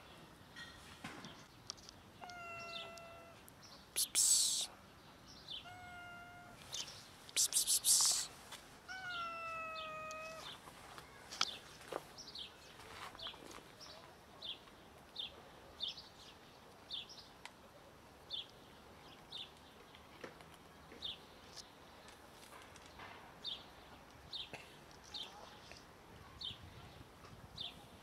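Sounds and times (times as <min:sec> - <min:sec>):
kitten meowing: 0:02.2 - 0:03.4, 0:05.6 - 0:06.6, 0:08.9 - 0:10.5
small bird chirping: 0:05.3 - 0:08.3.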